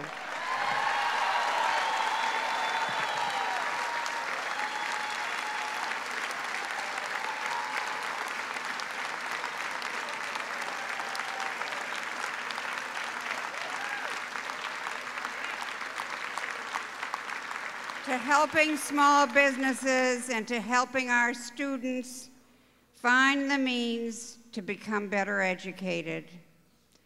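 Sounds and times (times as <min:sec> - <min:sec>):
audience applauding: 0:00.0 - 0:19.2.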